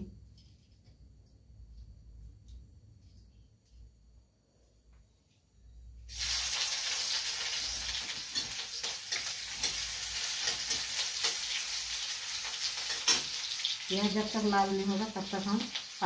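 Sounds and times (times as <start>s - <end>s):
vegetables sizzling in hot oil: 6.0s - 16.0s.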